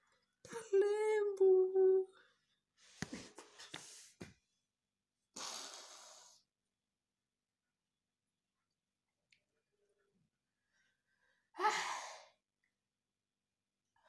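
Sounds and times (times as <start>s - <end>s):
sniffs or snorts: 5.4s - 6.4s.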